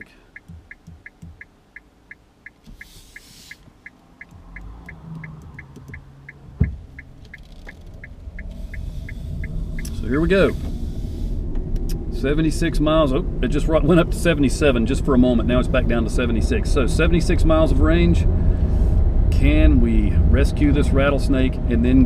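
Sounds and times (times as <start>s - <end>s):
turn signal ticking: 0.0s - 12.2s
low road rumble: 0.0s - 22.0s
passing traffic hissing: 2.5s - 12.2s
sharp thump: 6.5s - 6.9s.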